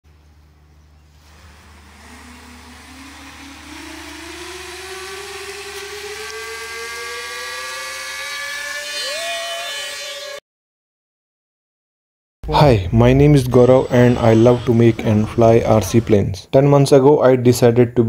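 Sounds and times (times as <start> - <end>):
electric motors and propellers whining: 0.1 - 10.4, 13.5 - 16.2.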